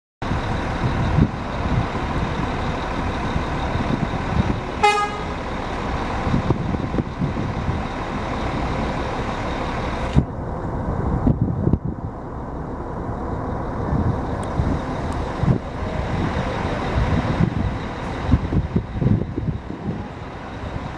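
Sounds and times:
coach diesel engine running: 0.2 - 20.9
street traffic: 0.2 - 20.9
vehicle horn toot: 4.8 - 5.4.

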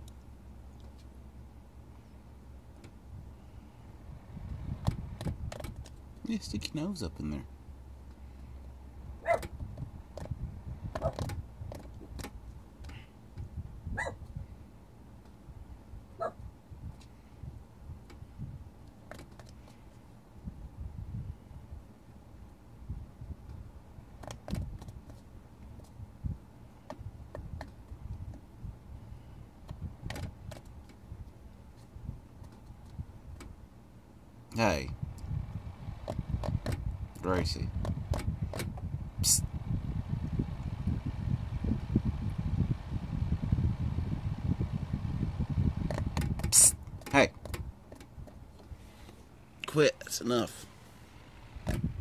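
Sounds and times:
low motor hum: 0.0 - 49.6, 50.4 - 52.0
fan blades clicking and knocking: 2.6 - 7.3, 8.0 - 14.5, 16.8 - 20.0, 23.2 - 52.0
cat tapping fan blades: 4.4 - 6.4, 9.3 - 13.6, 29.6 - 31.1, 35.0 - 39.0, 39.8 - 48.7.

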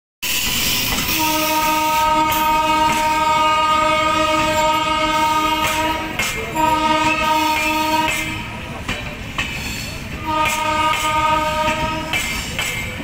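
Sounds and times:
train wheels clicking over rail joints: 0.2 - 13.0
locomotive horn blast: 1.1 - 8.6, 10.2 - 12.2.

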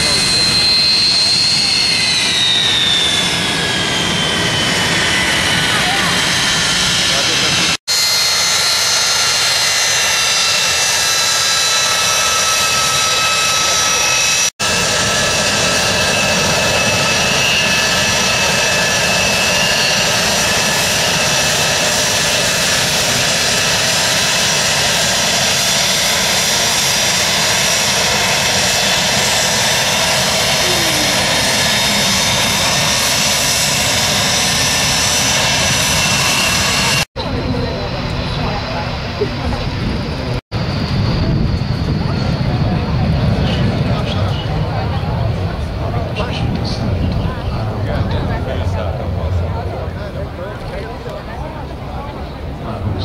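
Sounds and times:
jet engines whining while taxiing: 0.0 - 53.0.

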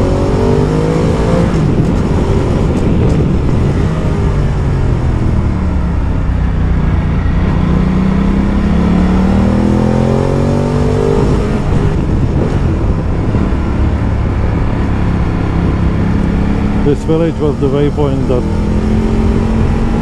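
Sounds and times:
motorcycle engine accelerating: 0.0 - 20.0
wind noise: 0.0 - 20.0.

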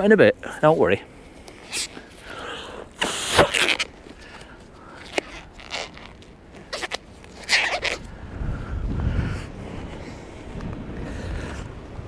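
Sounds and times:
gloves rustling and crinkling: 0.7 - 8.2
short scrapes: 3.0 - 3.9.

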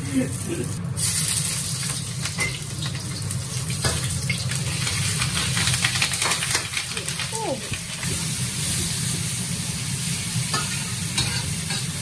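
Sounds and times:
food sizzling in a wok: 0.0 - 12.0
metal spatula scraping wok: 10.5 - 12.0.

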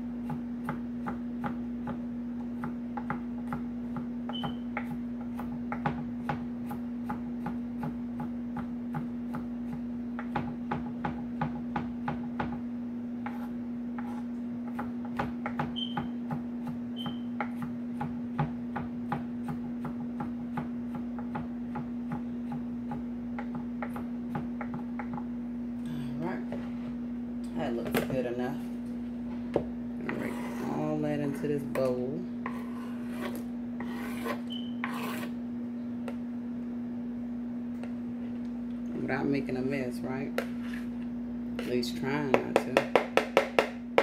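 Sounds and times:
knife chopping on cutting board: 42.3 - 44.0.

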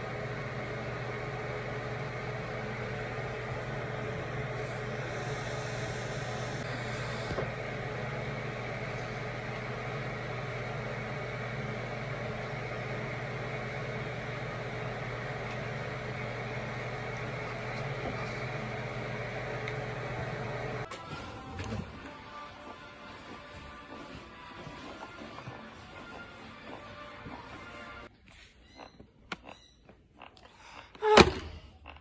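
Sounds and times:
fan humming: 0.0 - 28.1.

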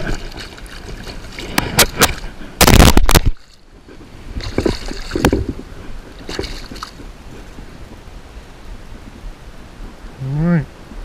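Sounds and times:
light water splashes: 0.0 - 7.6
low steady water wash: 0.0 - 11.0.

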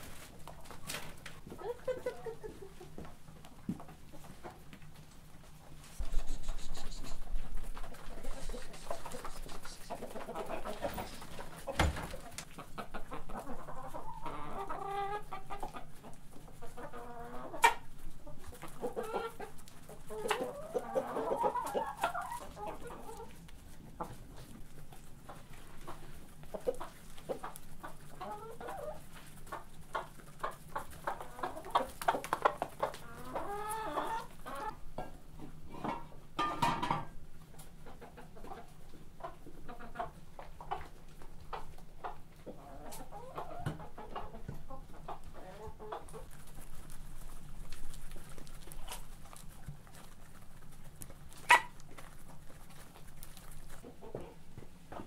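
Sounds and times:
hens clucking: 0.0 - 55.0
beaks pecking at feed bowl: 45.8 - 54.3.

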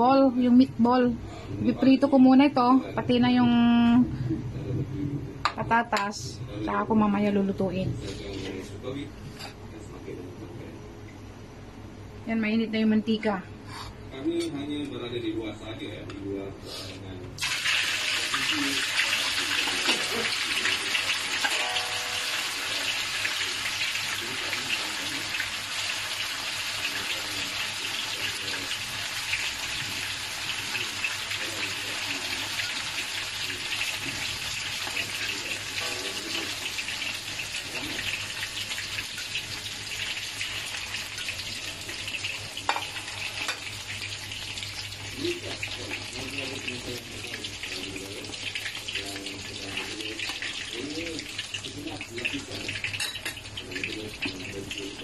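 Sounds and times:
food deep-frying in oil: 17.4 - 55.0.

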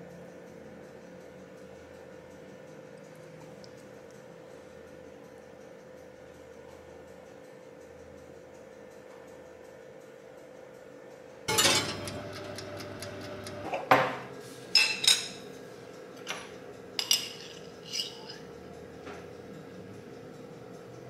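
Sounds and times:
metal spoon clinking on glass: 11.5 - 12.2, 14.8 - 15.4, 16.2 - 18.5
kitchenware clatter: 11.5 - 12.6, 13.6 - 15.5, 16.2 - 18.5.

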